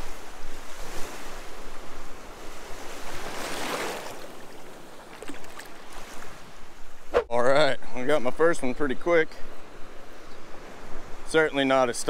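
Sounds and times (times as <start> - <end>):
surf washing in shallow water: 0.0 - 7.1.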